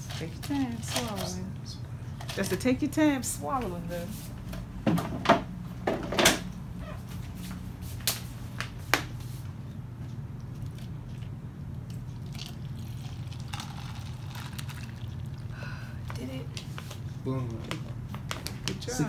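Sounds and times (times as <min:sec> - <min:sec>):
steady low hum: 0:00.0 - 0:19.0
cup and bottle clicks and rustles: 0:12.3 - 0:15.1.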